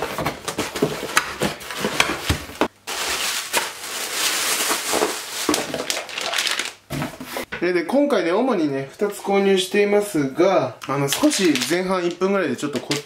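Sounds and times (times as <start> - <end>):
packaging crinkling and rustling: 0.0 - 7.4, 11.0 - 13.0.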